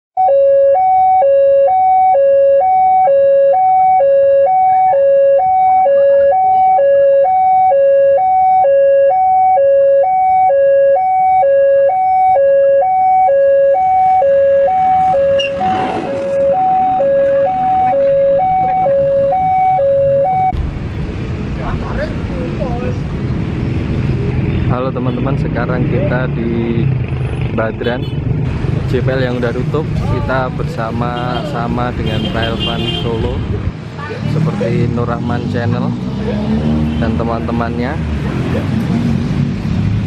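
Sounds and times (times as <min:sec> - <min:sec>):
two-tone electronic alarm: 0:00.2 - 0:20.6
rushing noise: 0:14.5 - 0:24.7.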